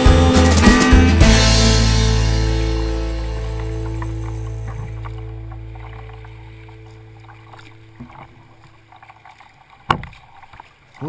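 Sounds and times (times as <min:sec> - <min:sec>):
held music chord: 0:00.0 - 0:08.0
water lapping: 0:01.2 - 0:11.0
paddle splashes: 0:01.4 - 0:11.0.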